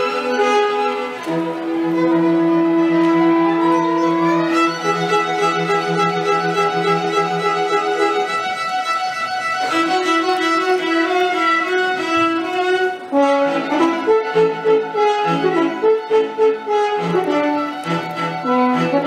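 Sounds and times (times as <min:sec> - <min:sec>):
string ensemble playing: 0:00.0 - 0:19.0
violin melody: 0:00.0 - 0:19.0.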